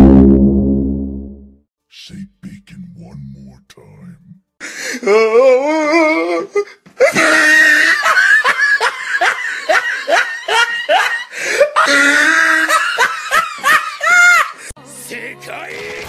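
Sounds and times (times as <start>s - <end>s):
person laughing hard: 7.0s - 14.6s.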